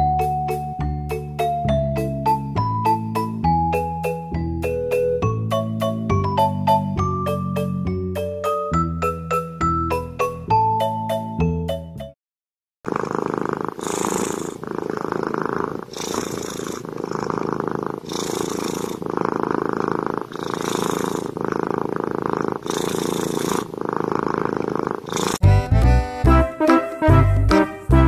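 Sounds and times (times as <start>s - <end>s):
kitten purring: 12.9s - 25.4s.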